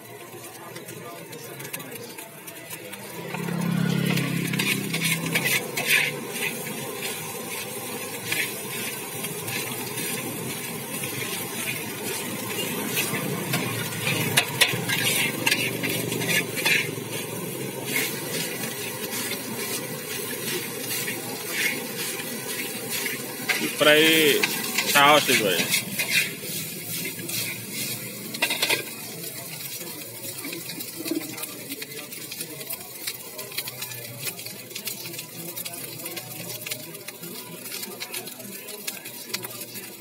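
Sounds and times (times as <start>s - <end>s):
food sizzling in a wok: 0.0s - 40.0s
metal spatula scraping a wok: 3.0s - 29.8s.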